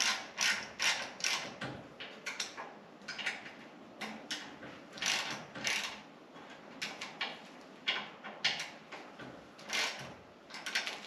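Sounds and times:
ratchet wrench clicking: 0.0 - 1.5, 5.0 - 6.0, 9.7 - 10.0.

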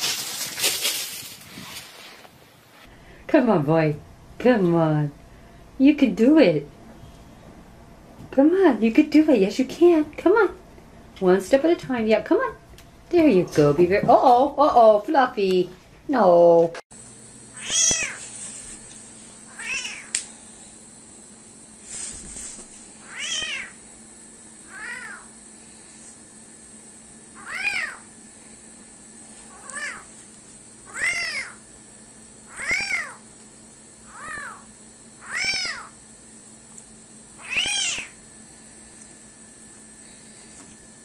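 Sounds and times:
kitten mewing: 17.6 - 18.3, 19.5 - 20.2, 23.0 - 23.8, 24.6 - 25.3, 27.4 - 28.1, 29.5 - 30.1, 30.8 - 31.6, 32.5 - 33.2, 34.0 - 36.0, 37.4 - 38.2.

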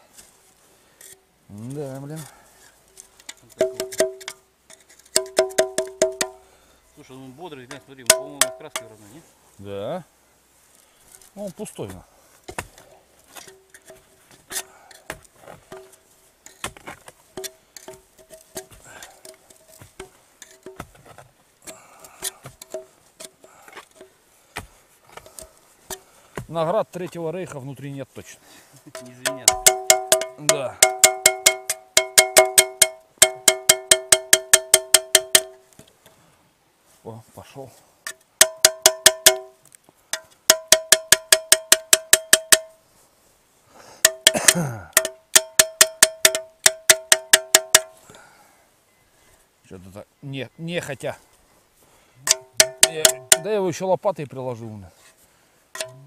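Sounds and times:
knocking on ringing metal tube: 3.6 - 4.4, 5.2 - 6.4, 8.0 - 8.9, 29.0 - 35.6, 38.4 - 39.6, 40.5 - 42.8, 44.0 - 48.0, 52.3 - 53.5, 55.8 - 56.0.

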